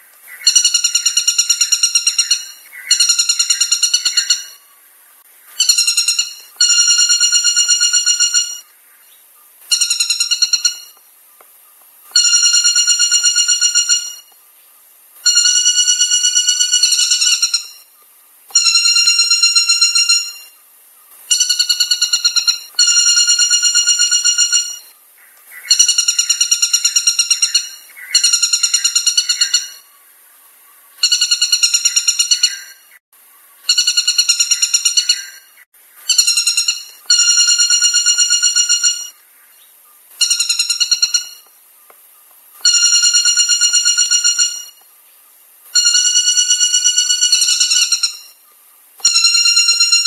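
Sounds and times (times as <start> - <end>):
woodpecker ringing call: 0.3 - 4.6, 5.6 - 8.8, 9.7 - 11.0, 12.1 - 14.4, 15.2 - 17.9, 18.5 - 20.6, 21.2 - 24.9, 25.5 - 29.9, 30.9 - 32.9, 33.6 - 39.2, 40.2 - 41.5, 42.6 - 44.8, 45.7 - 48.4, 49.0 - 50.0.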